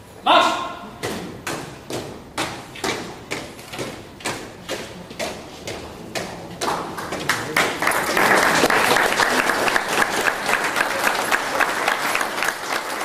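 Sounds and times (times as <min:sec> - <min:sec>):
close sharp hand claps: 0:06.2 - 0:13.0
audience applauding: 0:06.7 - 0:13.0.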